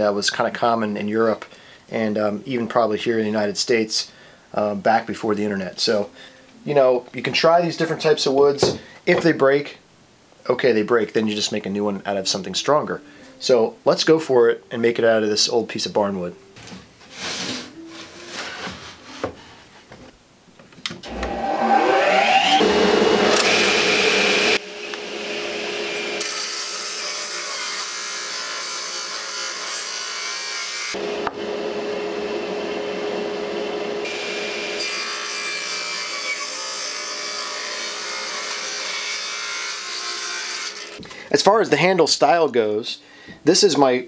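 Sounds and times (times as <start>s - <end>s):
radial arm saw whine: 21.0s - 26.2s
saw blade cutting wood: 21.0s - 31.4s, 34.0s - 41.0s.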